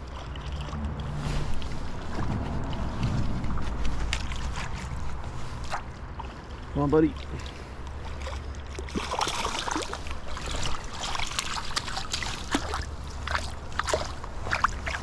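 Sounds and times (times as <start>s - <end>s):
river water trickling: 0.0s - 15.0s
fish splashing at surface: 7.4s - 15.0s.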